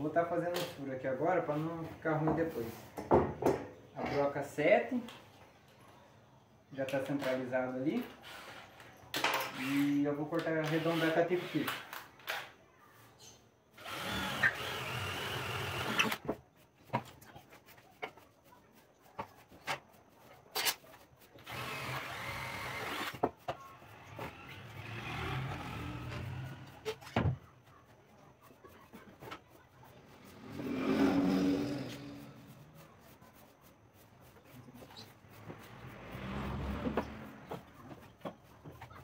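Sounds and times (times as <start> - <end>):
drill boring through wood: 9.4 - 10.0, 10.6 - 12.0, 13.8 - 16.2, 21.4 - 23.2, 24.2 - 26.8.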